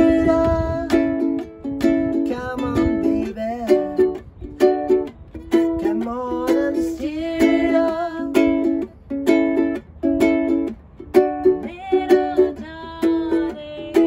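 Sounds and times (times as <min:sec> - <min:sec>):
man and woman singing: 0:00.0 - 0:01.3, 0:02.2 - 0:04.1, 0:05.8 - 0:08.7, 0:11.6 - 0:14.0
ukulele strummed in choppy chords: 0:00.0 - 0:14.0.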